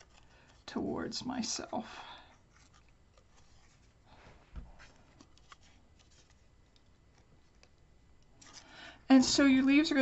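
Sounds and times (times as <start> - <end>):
paper rustling: 2.5 - 7.7.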